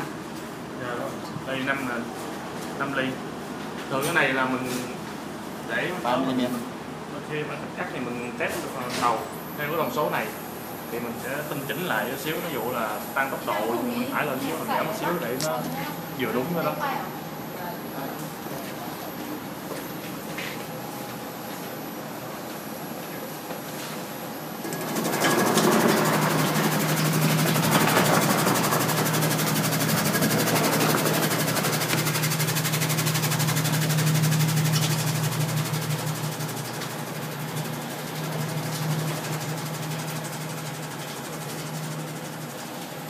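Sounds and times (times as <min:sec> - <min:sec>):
onion cutting machine humming: 0:24.6 - 0:43.0.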